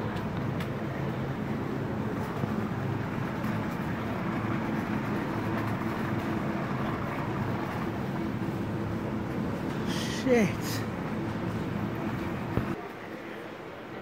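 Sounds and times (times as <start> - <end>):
shopping trolley wheels rolling: 0.0 - 13.4.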